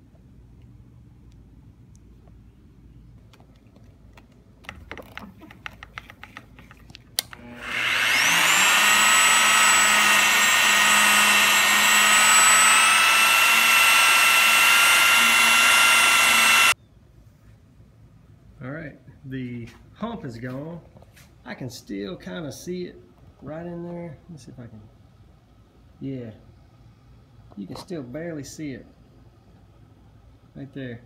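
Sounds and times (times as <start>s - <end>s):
electric buffer whining: 7.2s - 16.8s.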